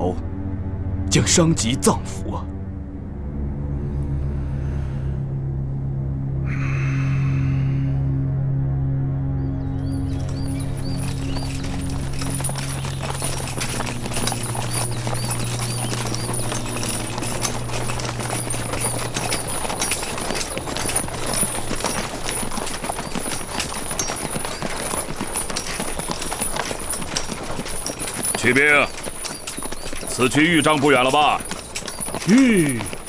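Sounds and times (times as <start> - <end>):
background music: 0.0 - 33.0
horses' hooves clip-clopping on road: 9.7 - 33.0.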